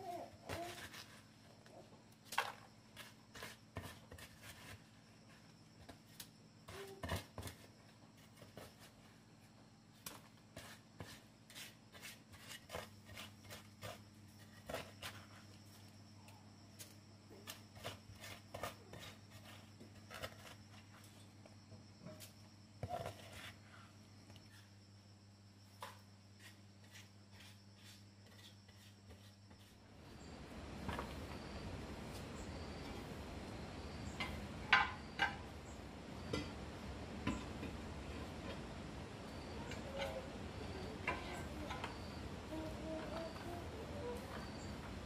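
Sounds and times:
faint hum: 0.0 - 45.0
trowel scraping wet mortar: 26.4 - 29.8.

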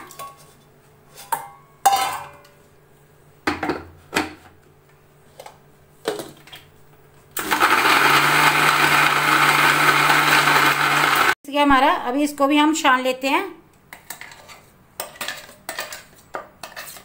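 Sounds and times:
electric mixer grinder running: 7.4 - 11.4.

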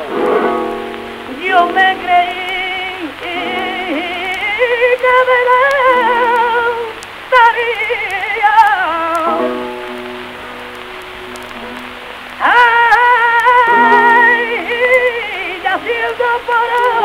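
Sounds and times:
person singing with vibrato: 0.0 - 10.6, 11.6 - 17.0
musical accompaniment: 0.0 - 17.0
record surface crackle: 0.0 - 17.0.

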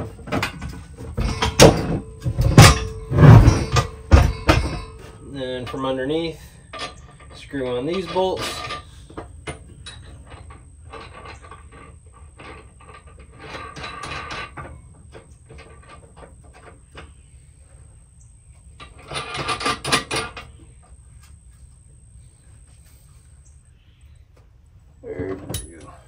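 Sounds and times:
metallic rattling: 0.0 - 17.1
metal clinks and scrapes: 0.0 - 17.2, 18.8 - 20.6, 25.2 - 26.0.

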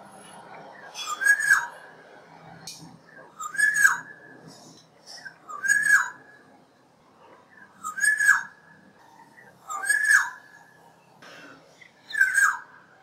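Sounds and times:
bird giving fluty whistled calls: 5.5 - 6.2.

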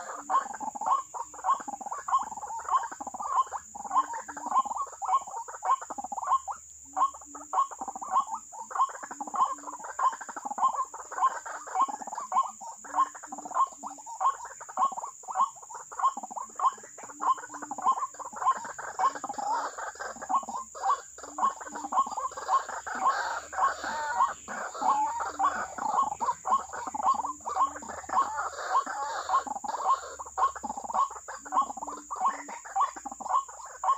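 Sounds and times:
bird harsh call: 7.2 - 33.9.

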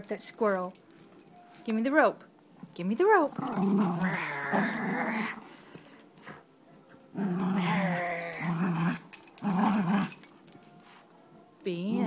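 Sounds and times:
dog growling: 3.3 - 5.6, 7.1 - 10.2.

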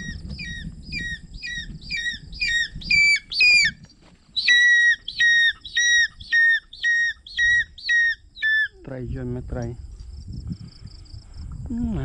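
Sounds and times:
hawk-eagle calling: 0.0 - 8.9.

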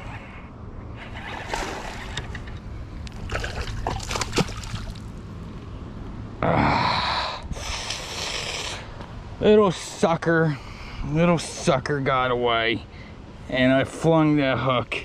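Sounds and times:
fish thrashing and splashing: 3.1 - 5.1.

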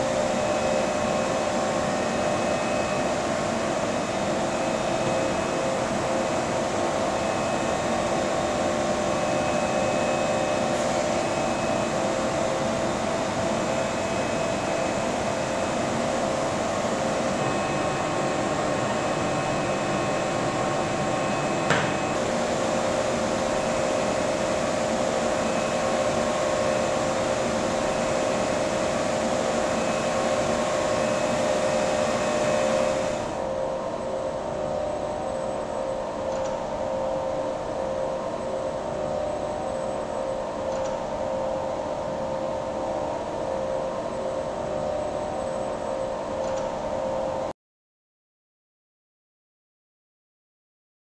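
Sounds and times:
constant hum: 0.0 - 47.2
ventilation whir: 0.0 - 47.5
sharp click: 40.7 - 41.0, 46.4 - 46.7.

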